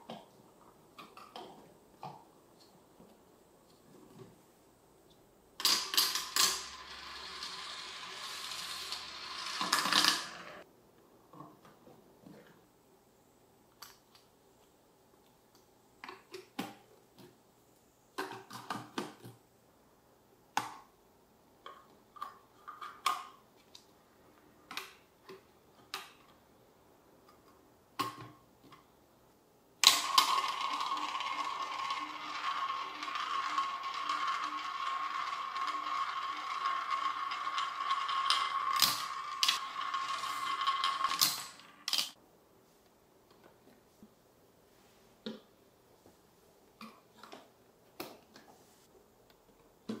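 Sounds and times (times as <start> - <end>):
marbles clicking and clacking: 5.6 - 10.6, 29.8 - 42.2
marbles rolling on plastic track: 5.6 - 10.6, 29.8 - 42.2
marbles whirring in plastic funnel: 5.7 - 10.6, 29.8 - 42.2.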